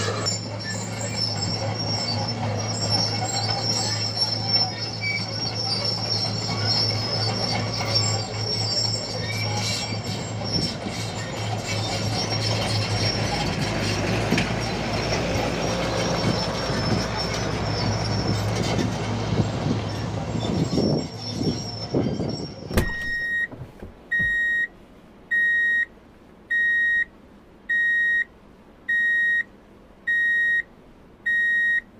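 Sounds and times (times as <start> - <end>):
excavator diesel engine running: 0.0 - 24.6
electronic beeps: 22.8 - 23.5, 24.1 - 24.7.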